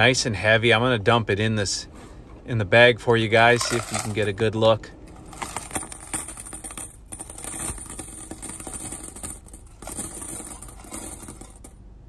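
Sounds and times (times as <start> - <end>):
coins clinking into a bag: 3.4 - 4.5, 5.1 - 11.8.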